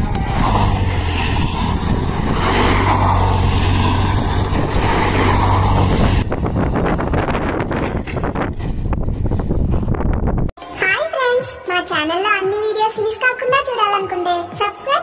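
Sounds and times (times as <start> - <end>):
motorcycle engine revving high: 0.0 - 9.1.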